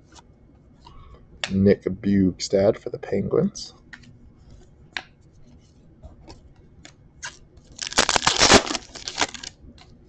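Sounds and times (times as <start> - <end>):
foil pack tearing and crinkling: 7.8 - 9.5.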